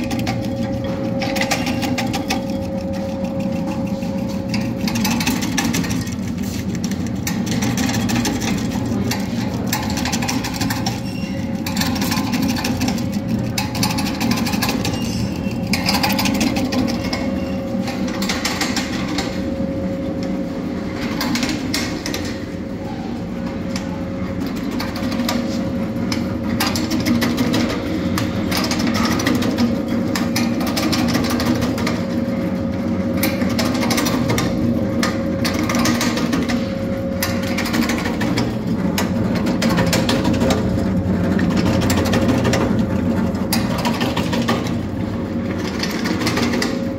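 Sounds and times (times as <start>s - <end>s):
rapid rattle of cutting clicks: 0.0s - 19.3s
nut cutting machine running: 0.0s - 22.7s, 24.3s - 46.9s.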